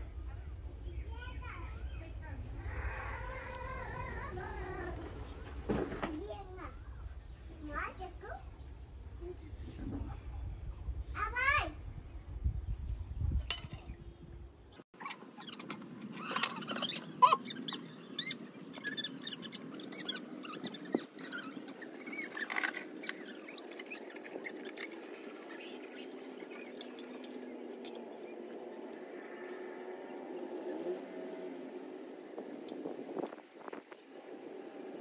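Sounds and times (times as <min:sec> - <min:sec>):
short squeaks: 0:15.0 - 0:27.2.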